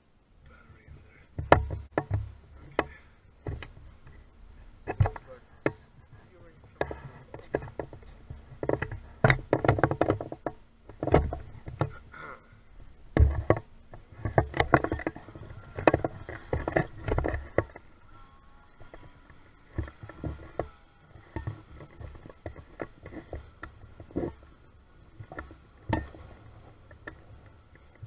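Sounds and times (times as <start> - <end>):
camera handling knocks and rustling: 1.4 - 4.2, 4.8 - 5.8, 6.7 - 12.0, 12.8 - 17.9, 19.7 - 24.5.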